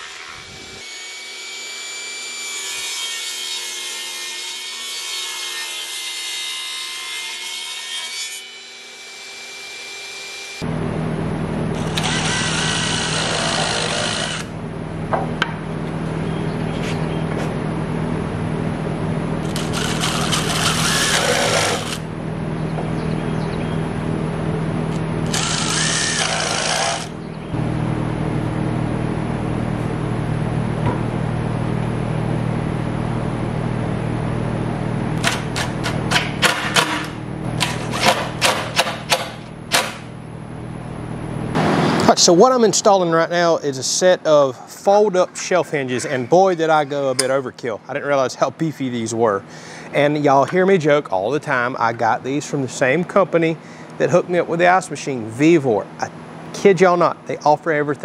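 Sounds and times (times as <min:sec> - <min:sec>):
steady low hum: 0:10.5 - 0:58.0
cordless drill driving screws: 0:11.8 - 0:14.5, 0:19.4 - 0:22.0, 0:25.2 - 0:27.1
sharp knocks and clicks: 0:35.2 - 0:40.1.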